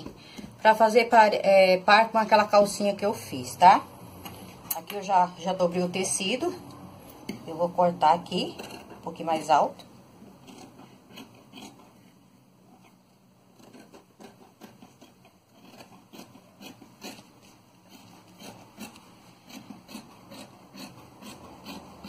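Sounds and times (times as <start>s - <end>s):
scissors snipping cloth: 13.6s - 22.0s.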